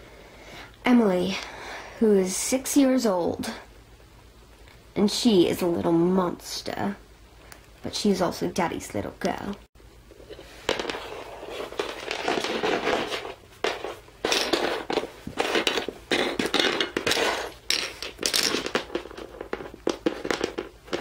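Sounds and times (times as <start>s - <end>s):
rustles and clatters: 10.1s - 21.0s
plastic toys knocking on wooden floor: 10.7s - 21.0s.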